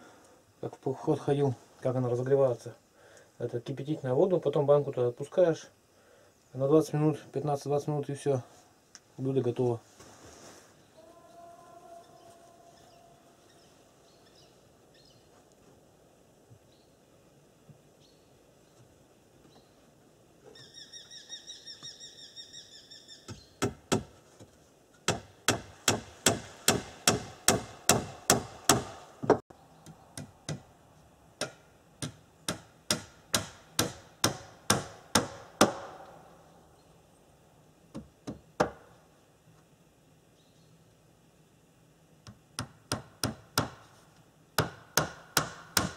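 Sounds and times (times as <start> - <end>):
hammer nailing wooden boards: 25.1 - 29.4, 31.4 - 36.0, 42.6 - 43.8, 44.6 - 45.9.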